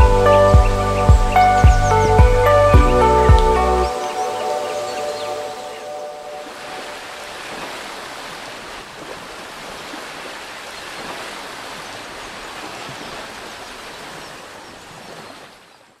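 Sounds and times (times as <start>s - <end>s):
sea surf washing over rocks: 3.9s - 14.2s.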